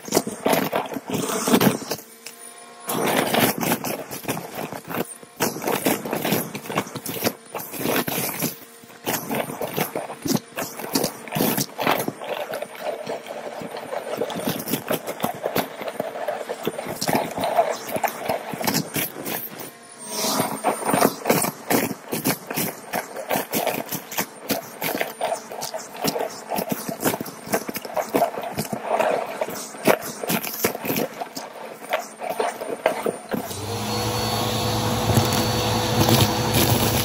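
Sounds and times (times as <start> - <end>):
vacuum cleaner motor whine: 0.1 - 27.7, 32.7 - 37.0
debris crackling in vacuum: 32.7 - 37.0.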